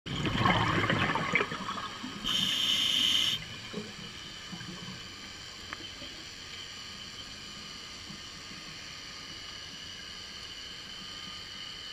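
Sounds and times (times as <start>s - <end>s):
bubbles rushing and gurgling: 0.1s - 2.4s
regulator hiss on inhale: 2.2s - 3.4s.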